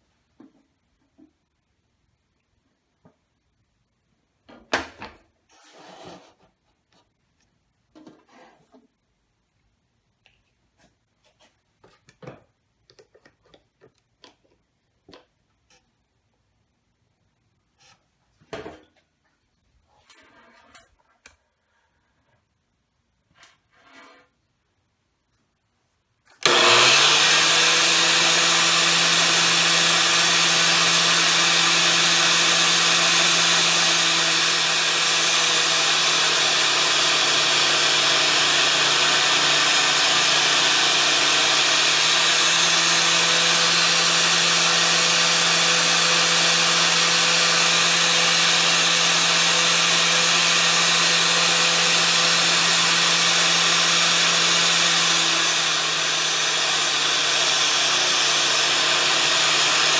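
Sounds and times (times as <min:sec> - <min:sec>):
angle grinder grinding steel: 0:26.4 - 0:59.9.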